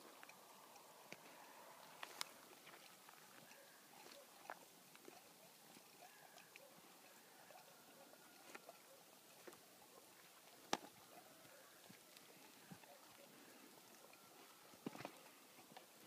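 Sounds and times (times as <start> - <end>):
horse hooves on ground: 0.0 - 13.2, 13.8 - 16.0.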